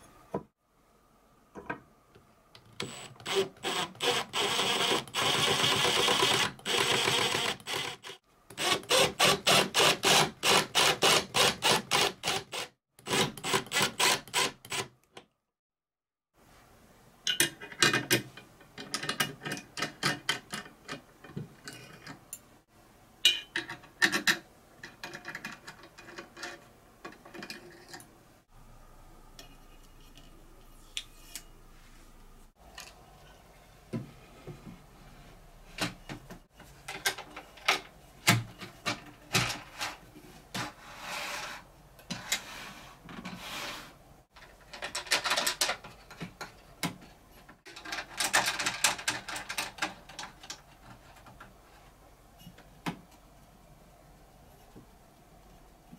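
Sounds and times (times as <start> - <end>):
rubbing and sliding on wood: 40.5 - 44.0.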